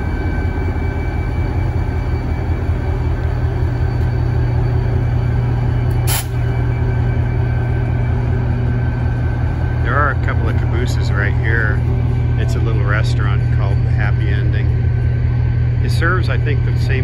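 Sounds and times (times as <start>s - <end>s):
faint steady whine: 0.0s - 17.0s
locomotive engine rumbling: 0.0s - 17.0s
short sharp burst of noise: 6.1s - 6.5s.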